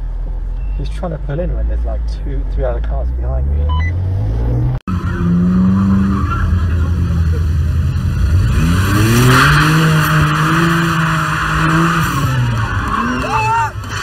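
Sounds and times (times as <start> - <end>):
car engine revving: 0.9 - 14.0
tyres screeching: 9.3 - 14.0.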